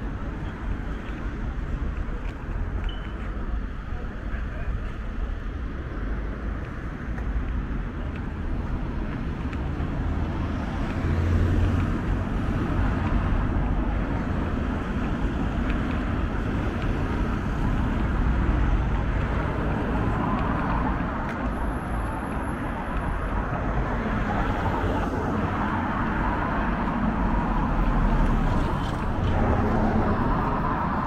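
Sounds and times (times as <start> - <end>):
cars driving past: 6.6 - 31.0.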